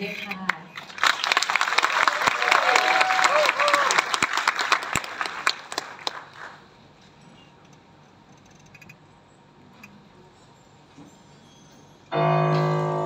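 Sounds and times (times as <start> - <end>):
audience clapping: 0.4 - 6.8.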